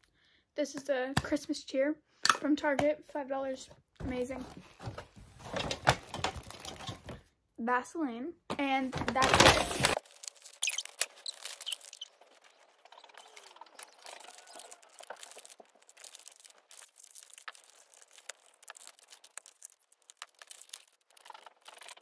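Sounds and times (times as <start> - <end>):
wrapping paper rustling: 4.4 - 7.2, 9.0 - 22.0.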